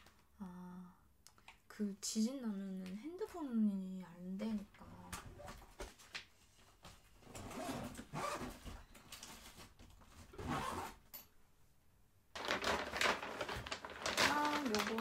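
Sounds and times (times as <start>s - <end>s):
zip closing: 7.3s - 8.8s, 10.3s - 11.0s
fabric bag scratchy rubbing: 7.4s - 8.6s, 10.2s - 11.0s
plastic bag rustling: 12.4s - 15.0s.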